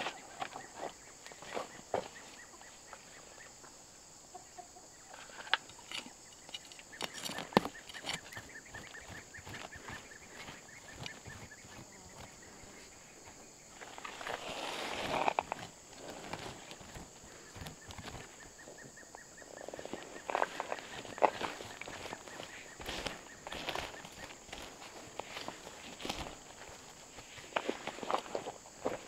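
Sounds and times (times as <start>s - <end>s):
high insect drone: 0.0s - 29.0s
chickens clucking: 1.4s - 12.6s
hands rustling through dirt: 6.6s - 29.0s.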